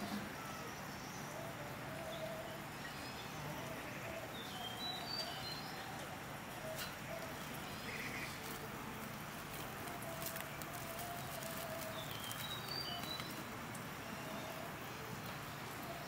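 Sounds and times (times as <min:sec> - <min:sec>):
distant bird calls: 0:00.0 - 0:16.0
steady background hiss: 0:00.0 - 0:16.0
high bird chirping: 0:02.1 - 0:08.8, 0:09.5 - 0:14.7.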